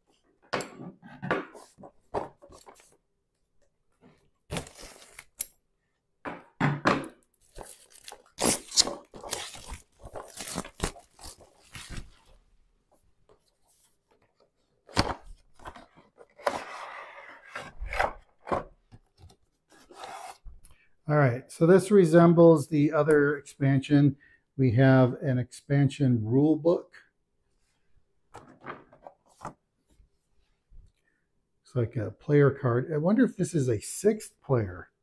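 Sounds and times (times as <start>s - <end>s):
shrink wrap tearing and crinkling: 7.4s - 12.2s.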